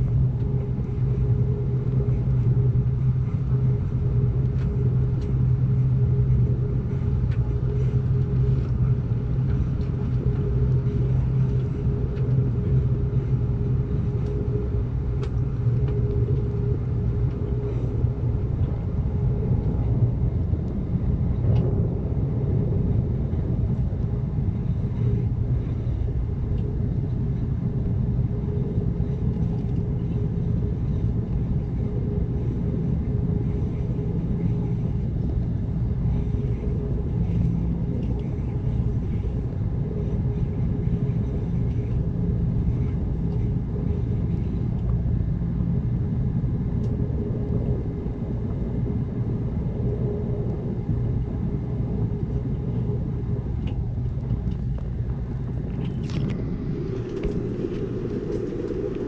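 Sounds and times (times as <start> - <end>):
faint ticks: 15.1 - 16.6.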